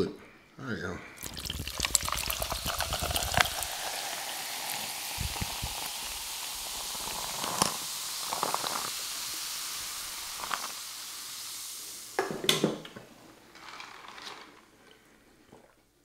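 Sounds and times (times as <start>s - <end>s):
ice clicks: 1.2s - 9.0s
fizzy drink crackling: 1.2s - 12.2s.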